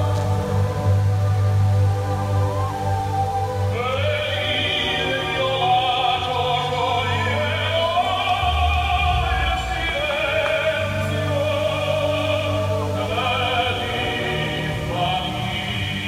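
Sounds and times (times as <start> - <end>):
operatic singing voice: 0.0 - 1.3, 3.6 - 16.0
orchestral opera music: 0.0 - 16.0.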